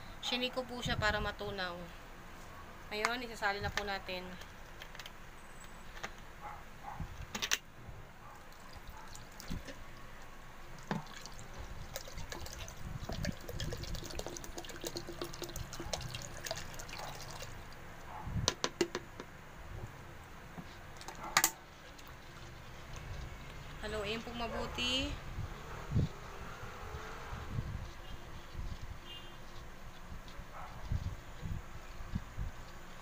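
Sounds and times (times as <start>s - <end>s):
liquid sloshing and splashing: 8.5s - 17.9s, 20.9s - 23.8s.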